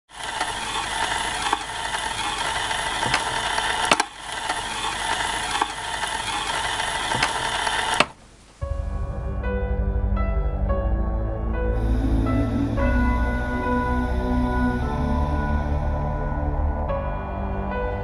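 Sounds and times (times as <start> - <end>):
film projector clatter: 0.1 - 8.2.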